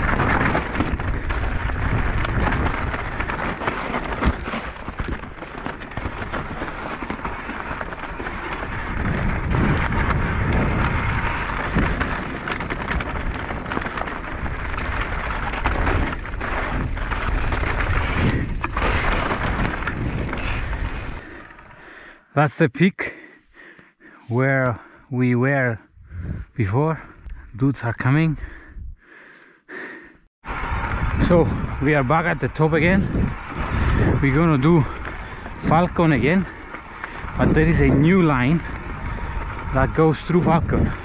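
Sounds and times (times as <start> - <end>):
wind rumble on microphone: 0.0 - 21.8, 25.9 - 27.6, 30.4 - 41.0
bike knocking and rattling: 0.0 - 22.0, 30.6 - 41.0
tyres rolling over gravel: 0.0 - 22.1, 30.5 - 41.0.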